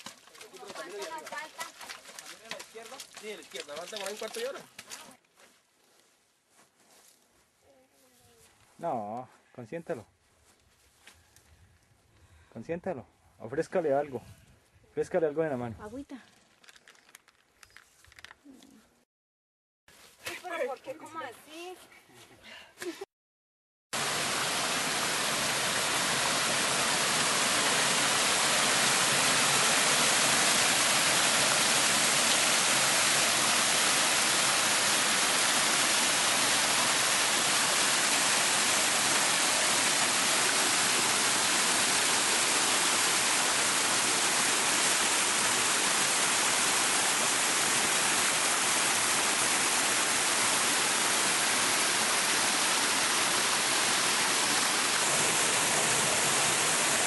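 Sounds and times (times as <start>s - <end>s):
river water rushing over rock: 24.0s - 57.0s.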